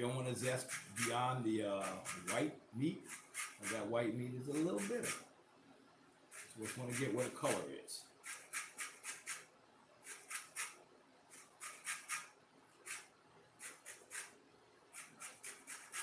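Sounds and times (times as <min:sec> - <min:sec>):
zesting on a metal grater: 0:00.4 - 0:01.2, 0:01.8 - 0:02.4, 0:03.1 - 0:03.9, 0:06.3 - 0:07.2, 0:08.2 - 0:16.0.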